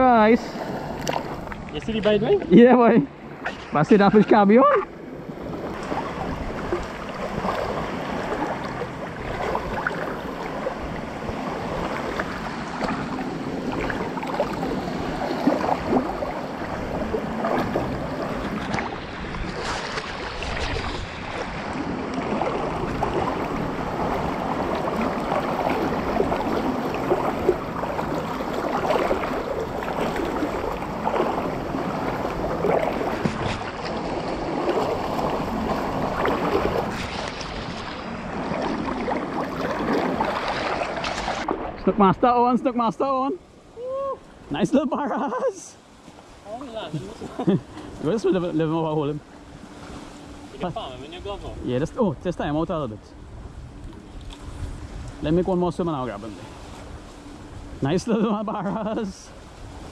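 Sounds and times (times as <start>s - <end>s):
seawater sloshing and splashing: 0.0s - 42.1s, 53.4s - 59.9s
wind on microphone: 4.7s - 42.0s, 53.0s - 57.8s.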